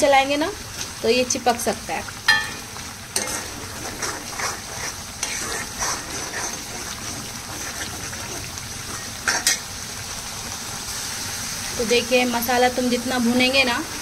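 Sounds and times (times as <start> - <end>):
paste sizzling in oil: 0.1 - 14.0
spoon stirring and scraping pan: 2.3 - 9.8.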